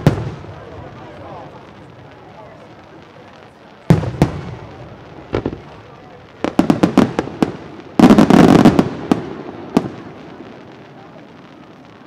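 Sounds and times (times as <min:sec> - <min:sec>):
firework shells bursting: 0:03.9 - 0:10.0.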